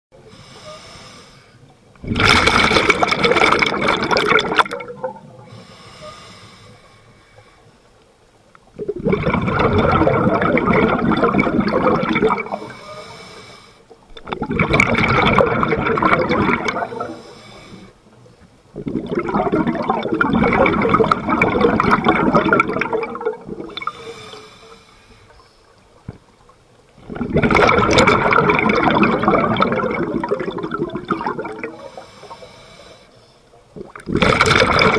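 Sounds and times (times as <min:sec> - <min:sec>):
diver exhaling bubbles through regulator: 0:02.0 - 0:05.2, 0:08.8 - 0:12.7, 0:14.2 - 0:17.2, 0:18.8 - 0:24.3, 0:27.0 - 0:32.4, 0:33.8 - 0:34.9.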